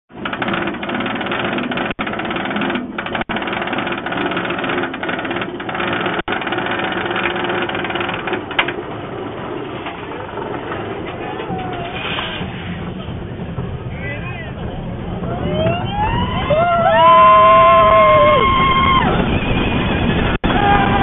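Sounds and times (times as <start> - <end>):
lift chain clatter: 0.1 - 8.8.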